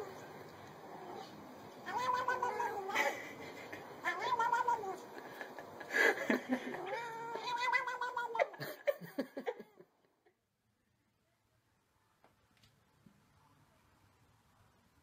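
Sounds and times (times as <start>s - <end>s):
cat meowing: 0.9s - 3.0s, 4.0s - 5.1s, 6.7s - 8.6s.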